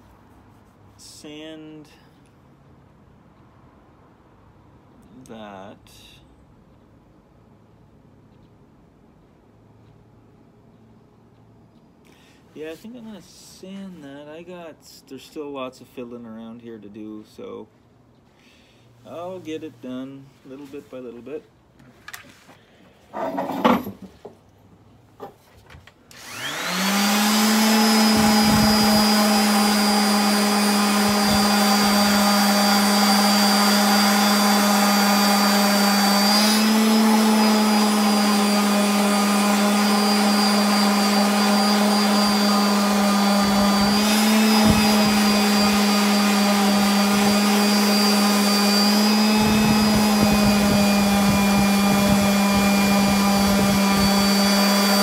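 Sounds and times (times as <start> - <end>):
electric palm sander humming: 26.2 - 55.0.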